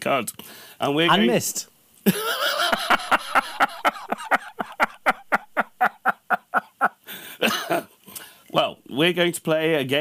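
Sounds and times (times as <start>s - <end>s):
man laughing hard: 2.1s - 7.9s.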